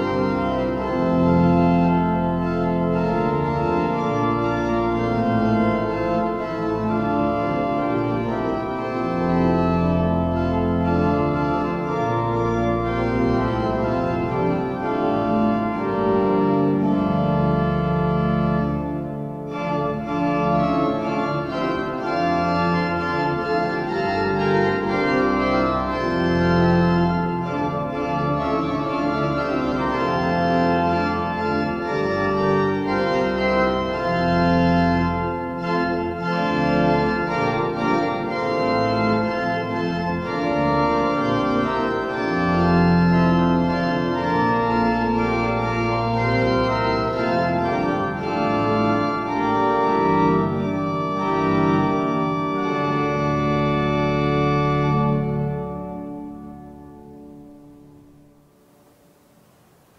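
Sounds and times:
pipe organ playing chords: 0.0 - 59.9.

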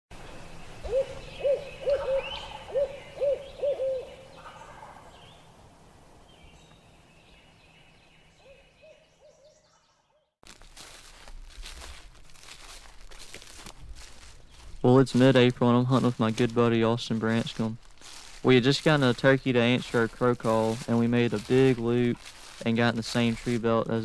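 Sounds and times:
owl hooting: 0.8 - 5.3.

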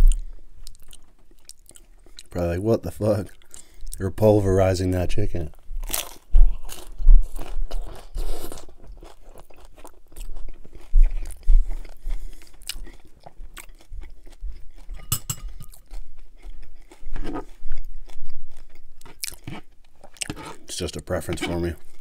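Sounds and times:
chewing with crunches: 0.0 - 2.4, 5.8 - 22.0
crunching taco bite: 5.8 - 15.0, 15.7 - 20.4.

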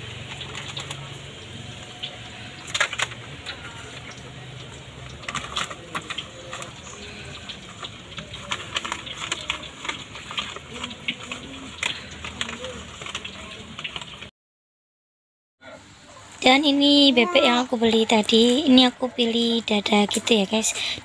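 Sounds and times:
paper wrap crinkling: 0.0 - 14.3.

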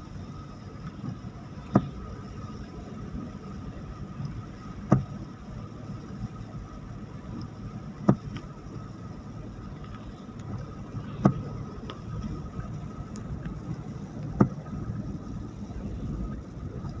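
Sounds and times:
car road and engine noise: 0.0 - 17.0
windshield wiper knocks: 4.8 - 5.1, 8.0 - 8.5, 11.1 - 12.4, 14.2 - 14.9.

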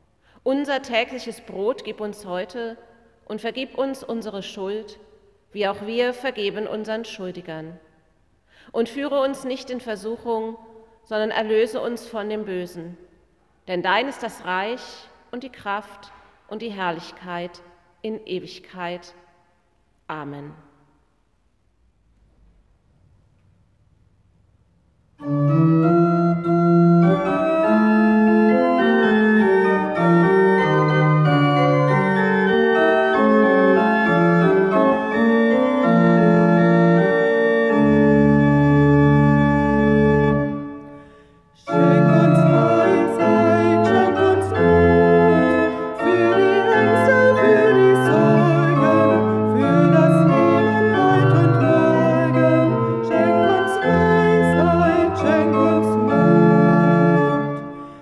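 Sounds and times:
pipe organ playing chords: 25.2 - 41.0, 41.6 - 58.0
woman singing a hymn: 41.7 - 56.4.

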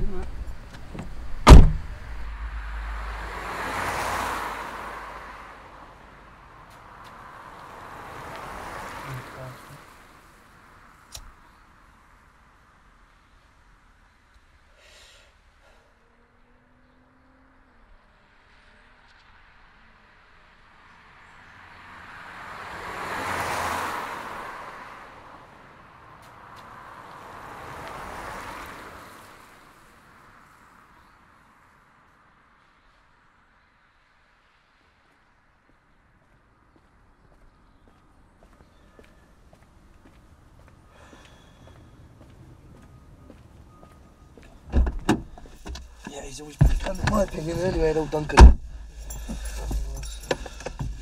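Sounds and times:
car driving past: 0.0 - 6.4, 7.0 - 10.3, 21.4 - 25.5
vehicle approaching: 0.0 - 10.0, 40.0 - 51.0
car passing by: 0.1 - 11.1, 16.0 - 32.9, 40.1 - 51.0
sharp knock: 1.0 - 2.5.

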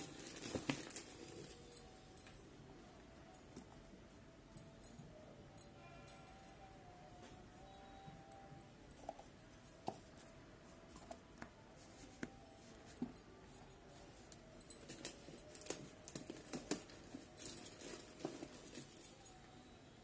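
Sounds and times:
plastic bottle and bag handling: 0.0 - 1.8.

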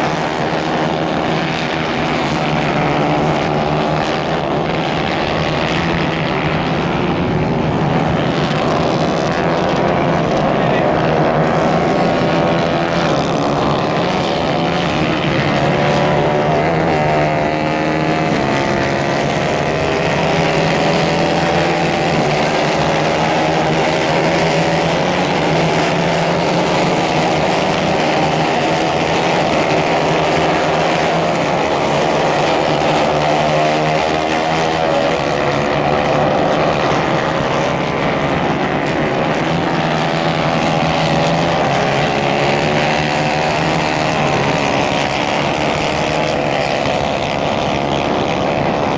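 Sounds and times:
kart engines buzzing: 0.0 - 48.9.

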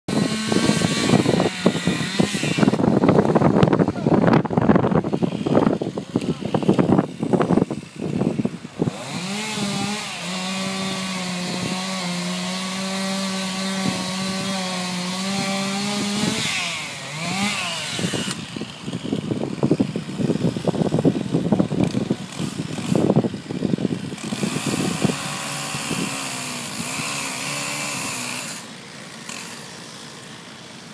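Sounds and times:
chainsaw cutting tree trunk: 0.1 - 30.9.

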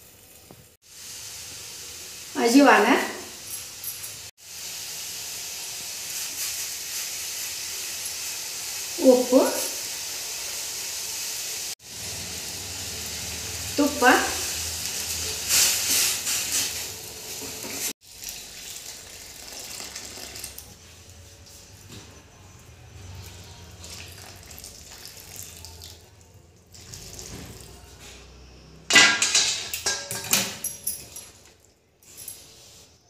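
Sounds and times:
ghee sizzling in a metal pan: 0.0 - 21.7.

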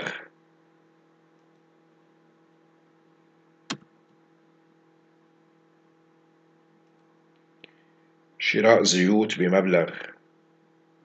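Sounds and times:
faint steady hum: 0.0 - 11.0
sharp computer click: 3.7 - 3.9.

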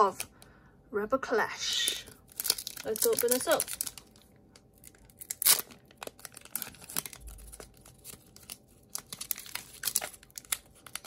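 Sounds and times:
wrapper crinkling: 1.9 - 11.0
foil wrapper ripping: 2.2 - 11.0.

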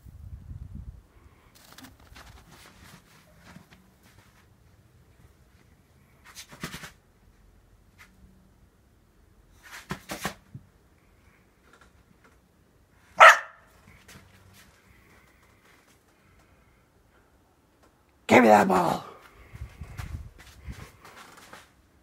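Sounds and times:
dog barking: 13.2 - 13.7.

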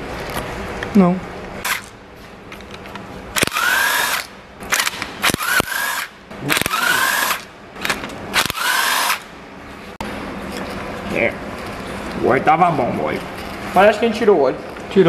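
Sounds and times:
pneumatic wrench whining: 1.6 - 1.9, 3.4 - 9.3.

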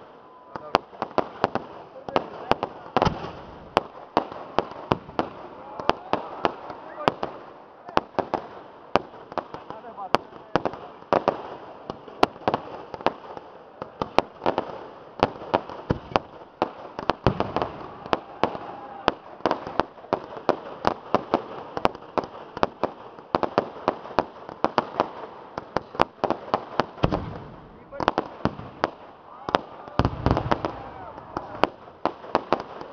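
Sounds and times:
fireworks bangs and cracks: 0.0 - 32.9.

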